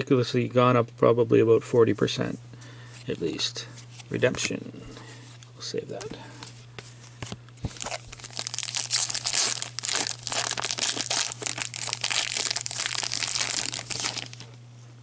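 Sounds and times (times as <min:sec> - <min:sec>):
foil wrapper crinkling: 0:07.6 - 0:14.6.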